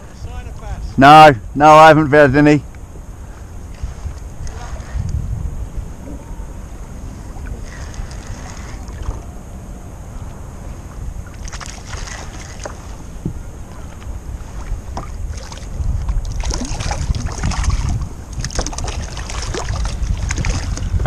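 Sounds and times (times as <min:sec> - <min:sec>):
wind buffeting microphone: 0:00.0 - 0:21.0
water lapping against hull: 0:03.3 - 0:09.4, 0:10.3 - 0:21.0
small splashes and knocks: 0:11.3 - 0:21.0.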